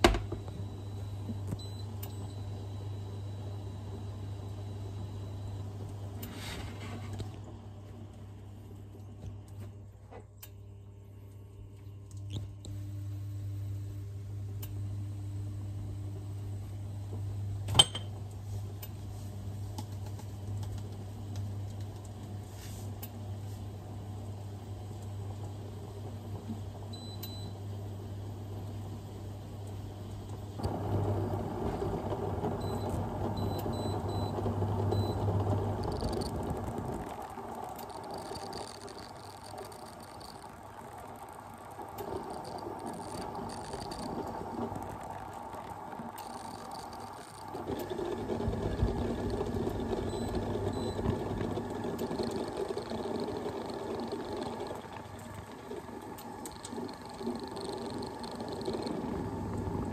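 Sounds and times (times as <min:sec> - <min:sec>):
induction hob humming: 0:00.0 - 0:59.9
fish frying in a pan: 0:35.6 - 0:47.7, 0:51.6 - 0:59.9.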